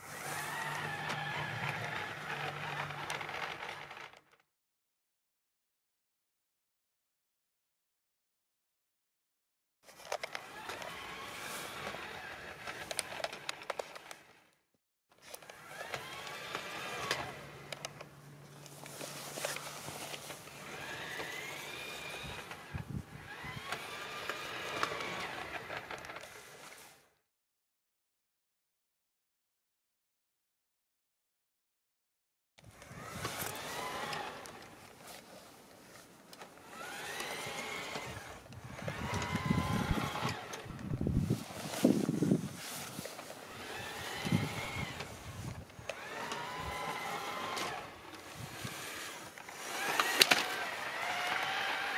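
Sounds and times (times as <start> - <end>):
electric motor whining under load: 0.0 - 4.2, 10.1 - 14.1, 15.3 - 26.6, 32.6 - 35.0, 36.3 - 51.9
scattered clicks: 12.6 - 14.3, 15.3 - 21.4, 43.0 - 51.9.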